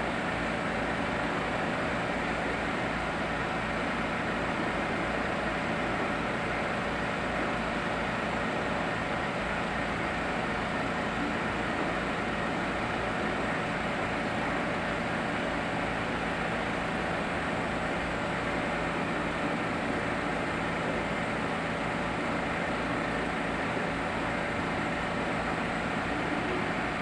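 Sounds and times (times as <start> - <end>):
aquarium air pump hissing and humming: 0.0 - 27.0.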